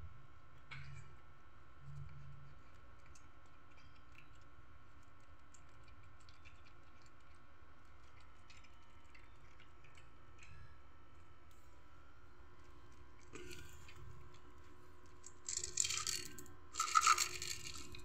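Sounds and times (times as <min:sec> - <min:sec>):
steady low hum: 0:00.0 - 0:18.0
cat crunching dry kibble: 0:12.5 - 0:18.0.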